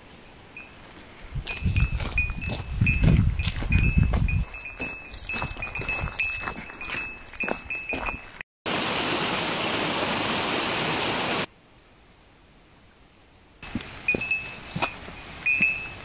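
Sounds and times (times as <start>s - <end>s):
footstep clicks: 0.8s - 8.4s, 13.6s - 16.0s
small bell jingling: 1.4s - 8.4s, 14.1s - 16.0s.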